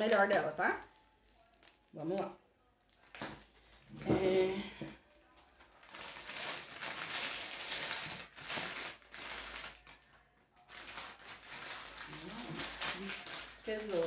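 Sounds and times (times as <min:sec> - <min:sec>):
plastic rustling and crinkling: 0:00.0 - 0:14.0.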